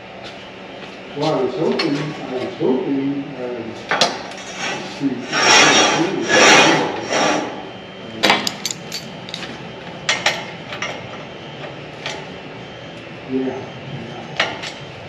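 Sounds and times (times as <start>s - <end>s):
metal bar scraping on steel table: 4.3s - 7.6s.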